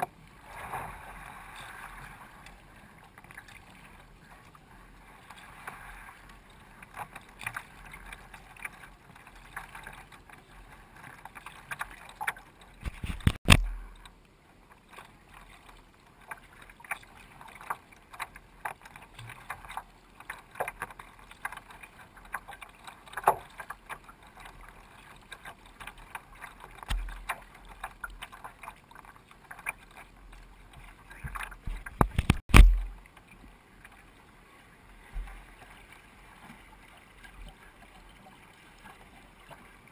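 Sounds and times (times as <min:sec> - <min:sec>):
paddle splashing water: 0:00.0 - 0:39.9
water lapping along hull: 0:00.0 - 0:39.9
loud thumps: 0:31.9 - 0:33.0.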